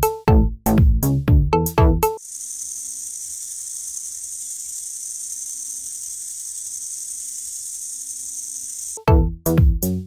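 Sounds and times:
small motor whirring: 2.2s - 9.1s.

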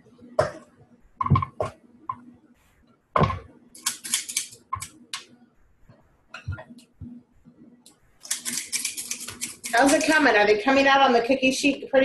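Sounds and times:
utensils clattering against bowls: 8.2s - 10.4s.

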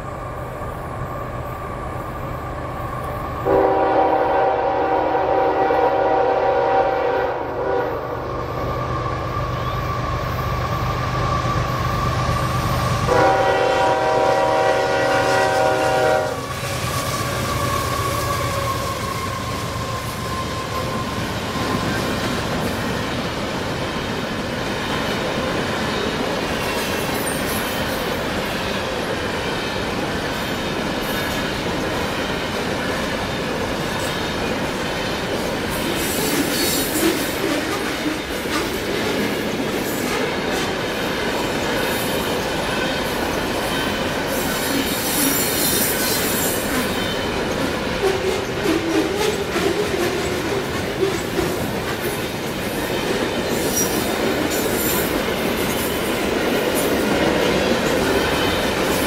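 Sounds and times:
locomotive horn: 3.4s - 8.2s, 13.0s - 16.6s
high-pitched wheel squeal: 16.9s - 22.1s.

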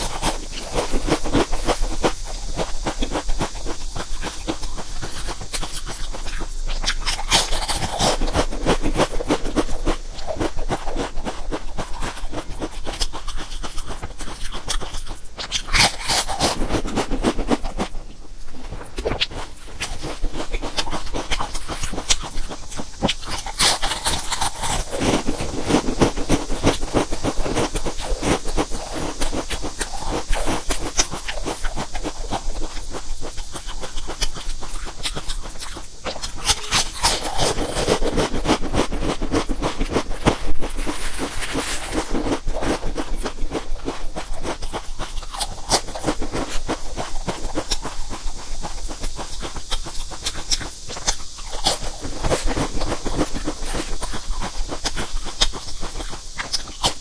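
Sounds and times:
chewing potato chips: 0.0s - 57.0s.

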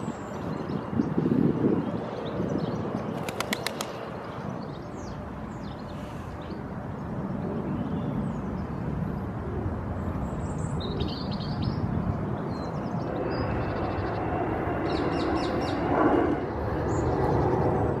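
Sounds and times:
small birds chirping: 0.0s - 6.6s
distant city traffic rumble: 0.0s - 18.0s.

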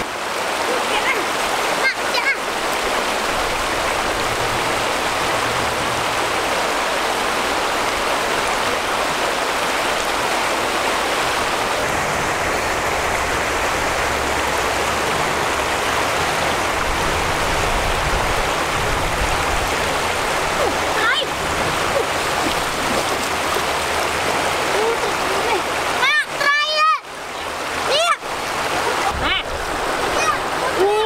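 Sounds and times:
river water rushing over rocks: 0.0s - 31.0s.

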